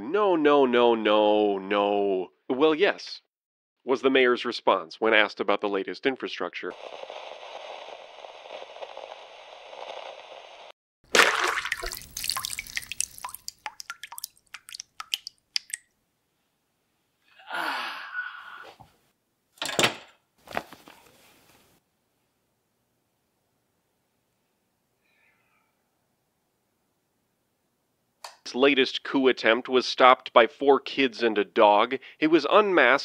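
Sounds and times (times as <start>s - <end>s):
liquid splashing and dripping: 11.1s - 15.9s.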